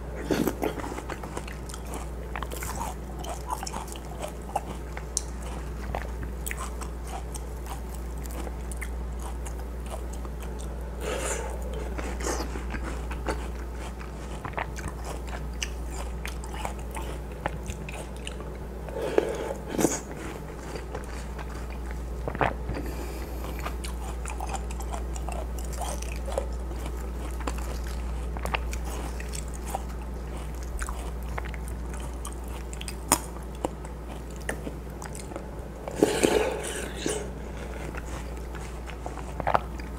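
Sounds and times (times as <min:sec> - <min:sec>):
person chewing watermelon: 0:00.0 - 0:39.9.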